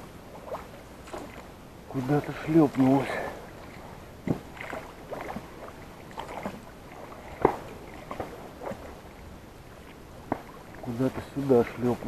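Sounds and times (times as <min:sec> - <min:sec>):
paddle dips and splashes: 0:00.2 - 0:12.0
paddle knocking on hull: 0:04.2 - 0:05.5.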